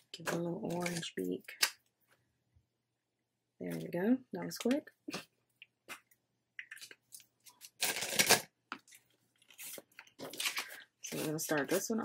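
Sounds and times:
plastic binder rustling: 7.0s - 12.0s.

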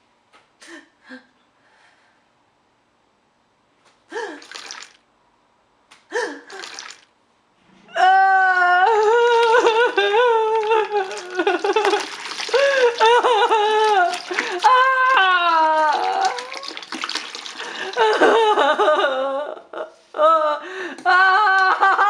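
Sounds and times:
high voice wailing: 13.0s - 16.9s.

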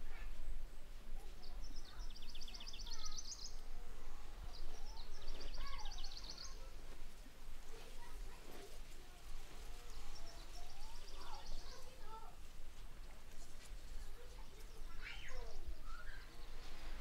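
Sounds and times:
faint bird chirps: 4.5s - 6.7s, 14.4s - 16.9s.

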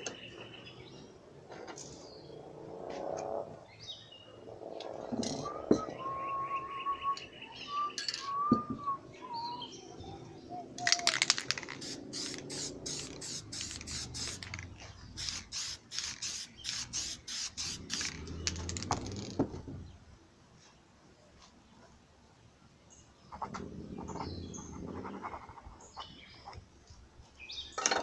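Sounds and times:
whistled bird-like call: 5.3s - 11.2s
spray paint can bursts: 10.8s - 19.4s.

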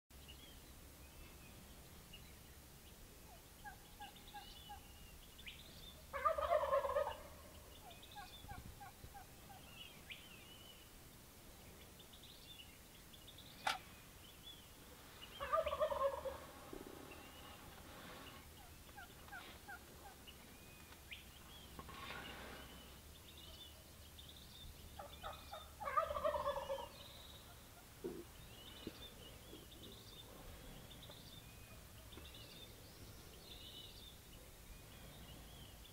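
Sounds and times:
turkey gobbling: 6.1s - 9.6s, 15.4s - 16.6s, 18.6s - 20.3s, 25.0s - 28.3s.

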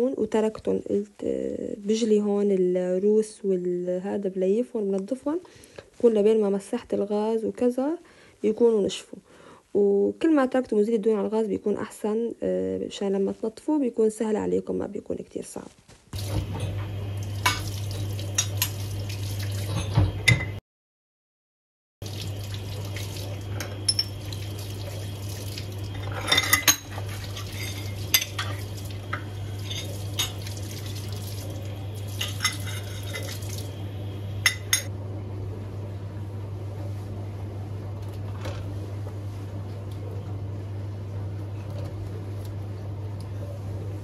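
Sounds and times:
tap running into sink: 16.2s - 20.6s
steady low hum: 22.0s - 44.0s
metal burner caps scrubbed: 32.2s - 33.3s.

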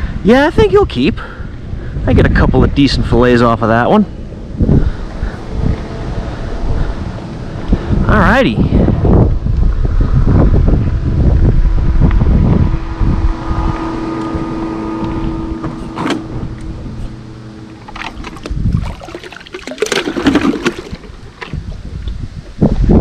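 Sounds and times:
steady drone: 0.0s - 21.8s
wind buffeting microphone: 0.0s - 23.0s
water splashing: 15.8s - 22.6s
plastic bucket clattering: 17.8s - 21.6s.

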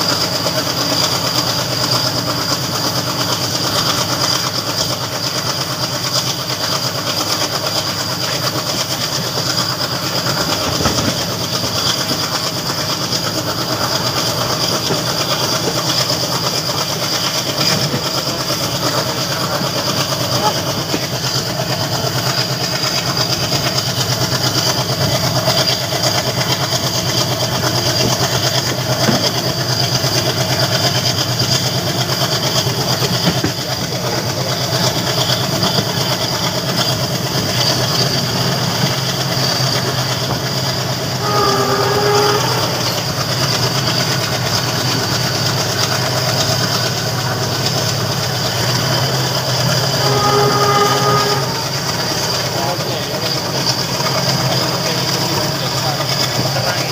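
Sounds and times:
locomotive engine chugging: 0.0s - 56.9s
wheels clattering on rails: 0.0s - 56.9s
train horn: 37.6s - 44.6s, 49.4s - 53.8s.

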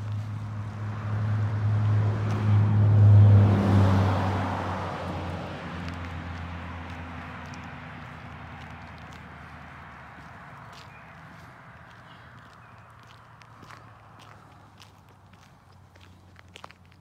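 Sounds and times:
pickup truck driving past: 0.2s - 11.8s.

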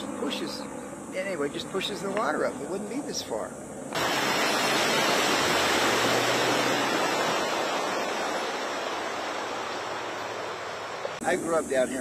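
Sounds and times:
low engine hum: 3.5s - 11.2s
water churning and splashing: 4.0s - 11.2s.

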